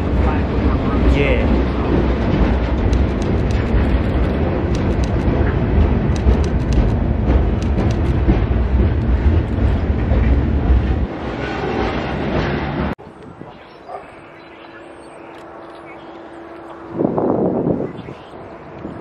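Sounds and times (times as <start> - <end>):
train wheels rumbling: 0.0 - 13.0
wheels clacking over rail: 0.6 - 11.1.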